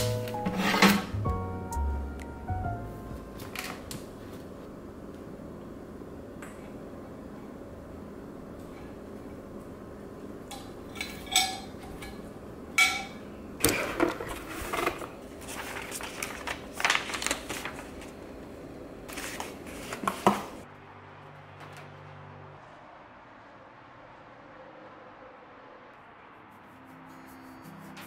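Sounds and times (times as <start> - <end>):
rustling and scraping: 0.0 - 1.2, 19.1 - 20.6
low room hum: 1.2 - 24.4.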